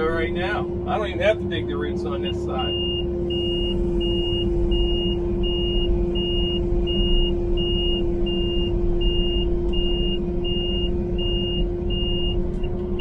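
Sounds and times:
diesel engine rumble: 0.0 - 13.0
electronic warning beeper: 2.2 - 12.4.

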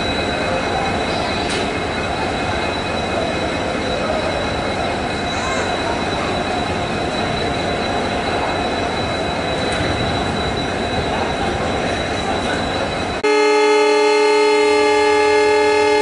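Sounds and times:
train rumbling with high whine: 0.0 - 16.0
locomotive horn blast: 13.2 - 16.0.

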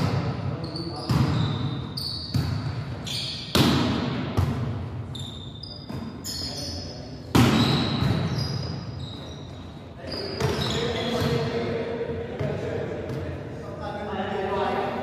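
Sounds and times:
shoes squeaking on court: 0.6 - 3.6, 5.1 - 11.4
volleyball hits echoing: 2.3 - 5.0, 7.2 - 8.4.

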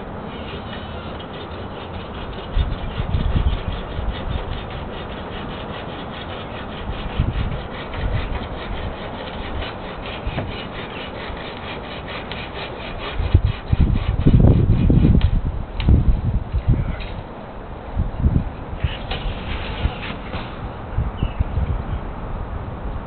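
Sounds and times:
hand saw cutting branch: 0.2 - 15.4, 18.8 - 20.7.

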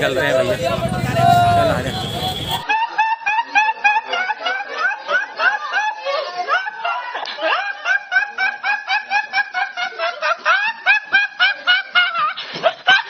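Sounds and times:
young man laughing: 0.4 - 13.0.

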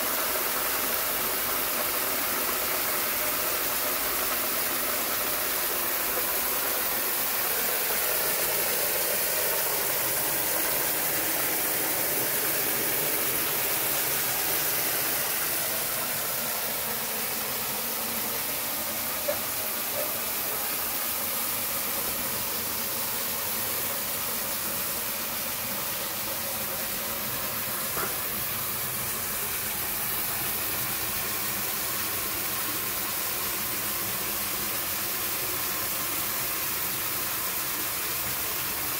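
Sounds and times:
tap water splashing into metal basin: 27.9 - 28.5.

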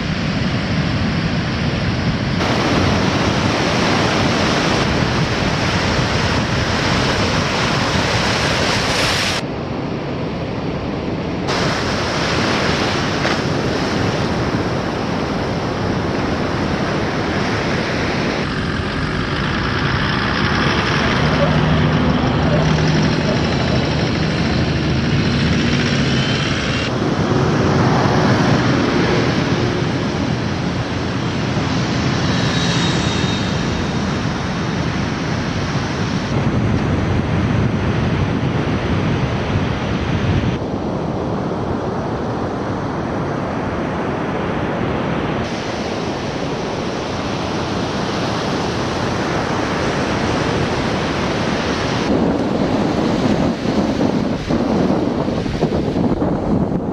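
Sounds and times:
breaking waves: 0.0 - 9.4, 11.4 - 38.3, 38.9 - 56.9
off-road vehicle engines running: 0.0 - 9.4, 15.9 - 39.6
wind hiss: 11.5 - 37.0.

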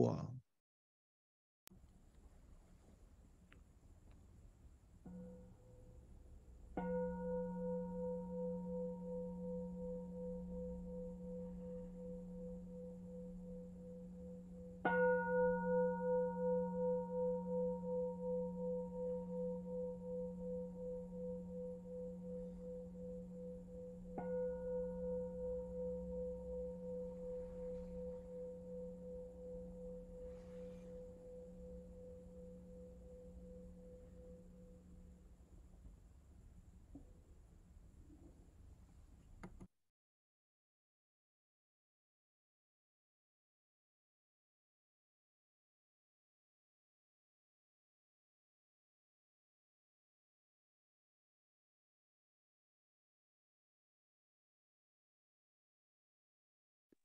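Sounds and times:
singing bowl ringing: 6.8 - 35.2.

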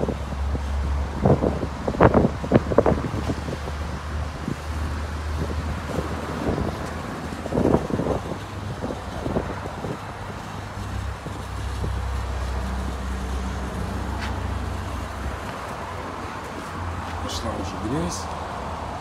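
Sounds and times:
wind noise on microphone: 0.0 - 19.0.

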